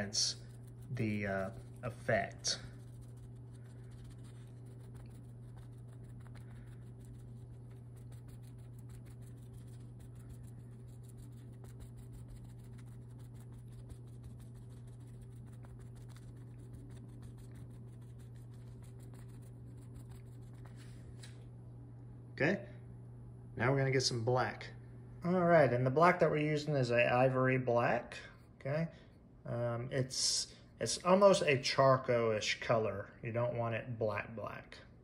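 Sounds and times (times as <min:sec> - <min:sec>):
paintbrush scratching fabric: 0:00.0 - 0:21.2
steady low hum: 0:00.0 - 0:35.0.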